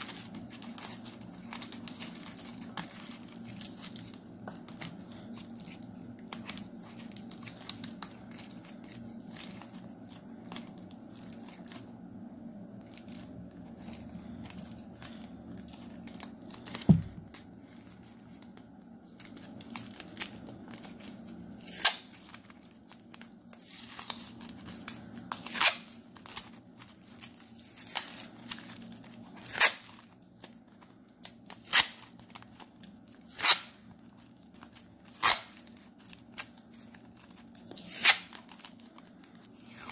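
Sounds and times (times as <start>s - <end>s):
aluminium foil crinkling: 0.0s - 12.0s, 12.7s - 39.9s
loud thump: 16.9s - 17.3s
masking tape ripping: 21.5s - 22.4s, 25.2s - 26.4s, 27.7s - 30.1s, 31.5s - 32.4s, 33.2s - 33.8s, 35.0s - 36.5s, 37.6s - 38.9s.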